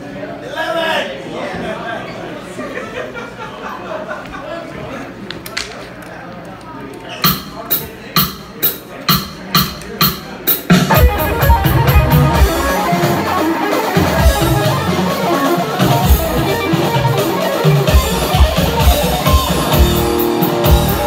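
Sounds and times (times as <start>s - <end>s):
metal band playing: 7.2s - 21.0s.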